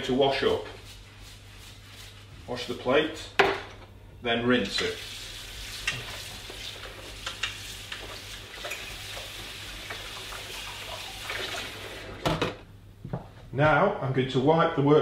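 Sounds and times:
tap running water into sink: 0:04.8 - 0:12.4.

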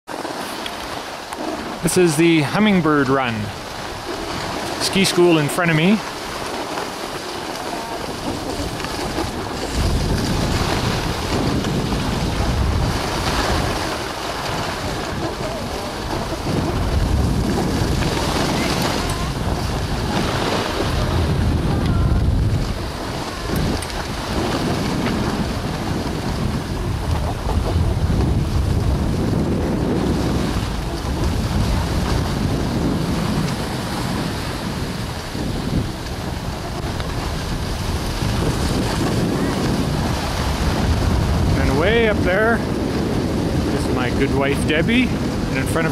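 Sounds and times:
skis hissing on snow: 0:00.1 - 0:21.4
skis sliding on snow: 0:00.1 - 0:45.9
wind rushing over microphone: 0:00.1 - 0:45.9.

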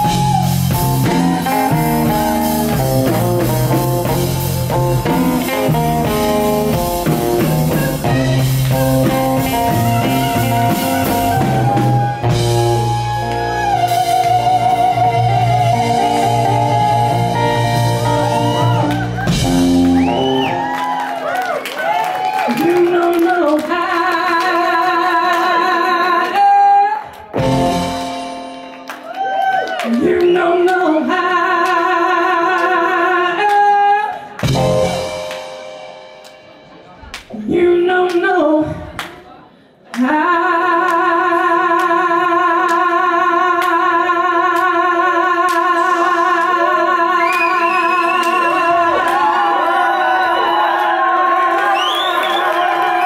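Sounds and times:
audience whooping and cheering: 0:00.0 - 0:03.5, 0:07.6 - 0:23.1, 0:28.8 - 0:30.0, 0:47.2 - 0:53.0
live band with electric guitars: 0:00.0 - 0:23.8, 0:26.3 - 0:31.1, 0:33.5 - 0:37.5.

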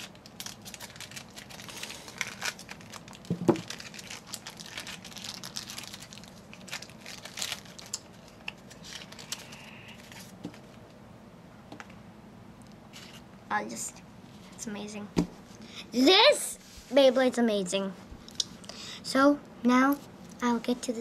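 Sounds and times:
plastic wrapping crinkling and tearing: 0:00.0 - 0:10.4.

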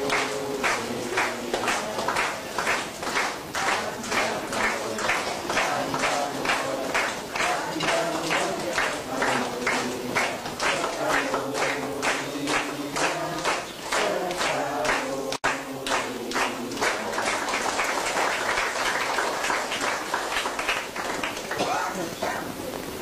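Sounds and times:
voices singing along: 0:00.0 - 0:22.4
people clapping in time: 0:00.0 - 0:22.5.

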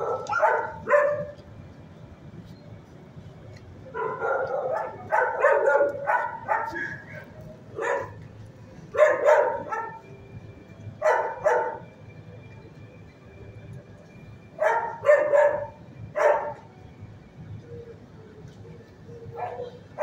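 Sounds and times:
dog barking: 0:00.0 - 0:01.4, 0:03.9 - 0:08.2, 0:08.9 - 0:10.1, 0:11.0 - 0:11.8, 0:14.6 - 0:16.6, 0:19.4 - 0:20.0.

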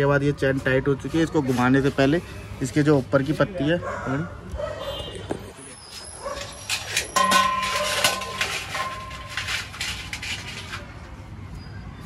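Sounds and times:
metal hand tools clinking: 0:06.4 - 0:10.9.

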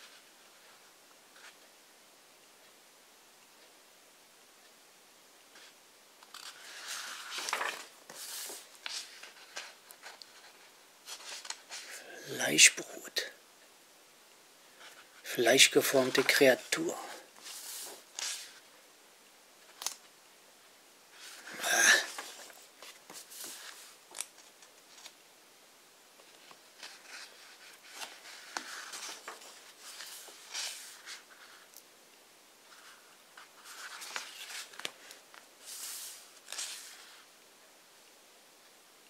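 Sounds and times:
book pages turning: 0:05.6 - 0:11.9, 0:14.8 - 0:18.6, 0:19.7 - 0:20.0, 0:21.2 - 0:25.2, 0:26.2 - 0:31.7, 0:32.7 - 0:37.2.

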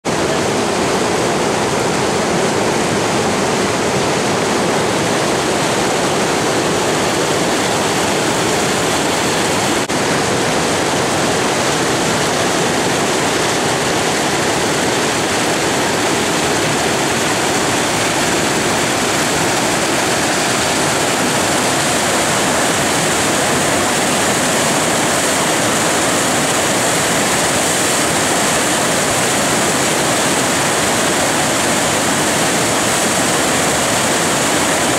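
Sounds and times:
fast water rushing and breaking: 0:00.0 - 0:34.9.

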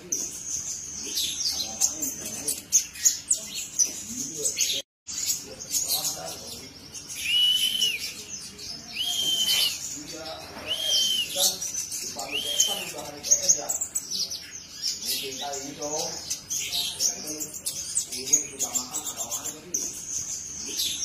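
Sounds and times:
bird chirping: 0:00.0 - 0:21.0
whistled bird notes: 0:07.0 - 0:13.6.

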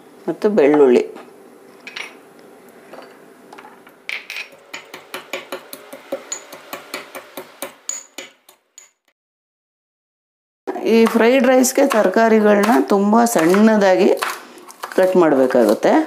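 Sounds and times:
pestle pounding in stone mortar: 0:04.8 - 0:08.6, 0:10.9 - 0:15.8.

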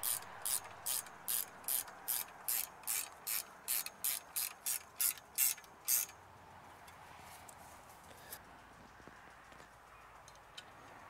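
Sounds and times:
ratchet wrench clicking: 0:00.0 - 0:06.2.

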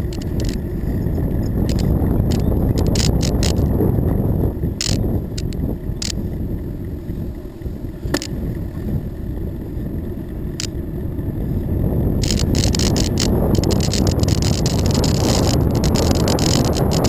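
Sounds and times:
sharp clicks: 0:00.0 - 0:00.6, 0:01.7 - 0:03.6, 0:04.8 - 0:06.2, 0:12.2 - 0:17.0
tyres rumbling on pavement: 0:00.0 - 0:17.0
wind buffeting microphone: 0:00.0 - 0:17.0.

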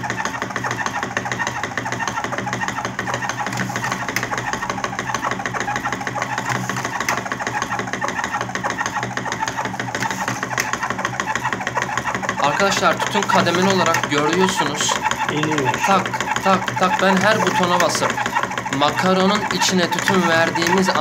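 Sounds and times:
machine mechanical chatter: 0:00.0 - 0:21.0.

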